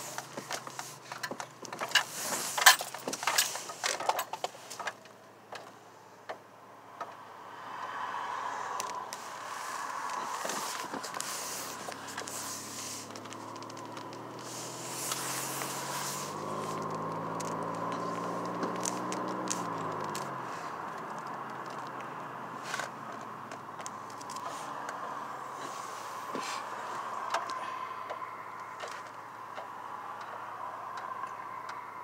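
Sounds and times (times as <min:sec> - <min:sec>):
car engine from inside cabin: 0:00.0 - 0:05.0, 0:05.8 - 0:32.0
clicks and crackles: 0:08.8 - 0:25.0, 0:25.6 - 0:30.4.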